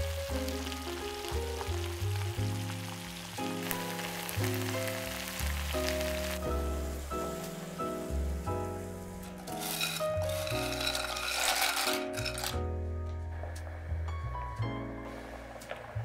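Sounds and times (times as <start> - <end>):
sauce sizzling in a pan: 0.0 - 12.0
background music: 0.0 - 16.0.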